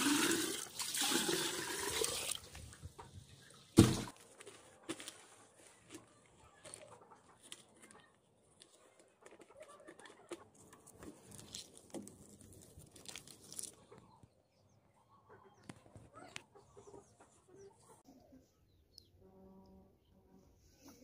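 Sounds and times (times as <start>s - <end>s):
plastic film crinkling: 4.2s - 13.9s.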